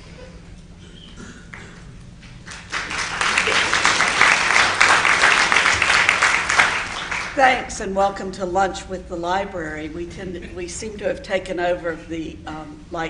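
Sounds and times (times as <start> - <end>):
audience applauding: 2.4 - 7.4.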